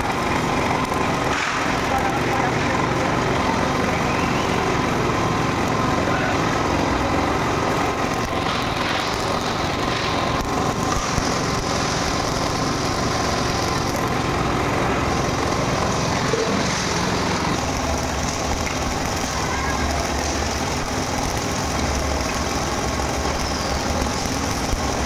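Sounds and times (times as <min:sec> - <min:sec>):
electric arc welding: 0:00.0 - 0:25.0.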